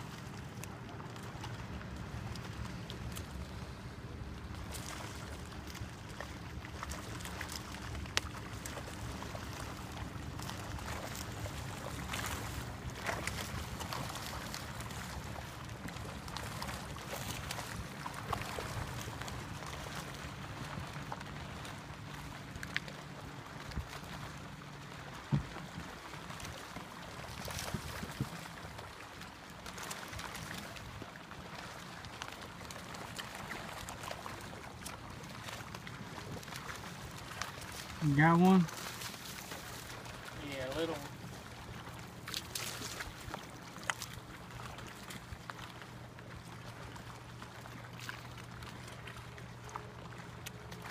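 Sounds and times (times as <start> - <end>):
waves lapping against a boat: 0.0 - 50.9
faint ticks and clicks: 20.7 - 23.0.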